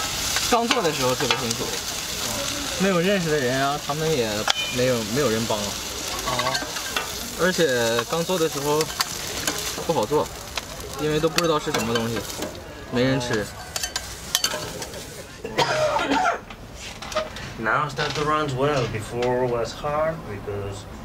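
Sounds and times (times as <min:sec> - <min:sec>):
food sizzling on griddle: 0:00.0 - 0:15.3
man talking: 0:00.5 - 0:06.7, 0:07.3 - 0:09.0, 0:09.6 - 0:13.6, 0:17.6 - 0:21.0
metal spatula scraping and tapping: 0:04.4 - 0:04.9, 0:13.2 - 0:15.0.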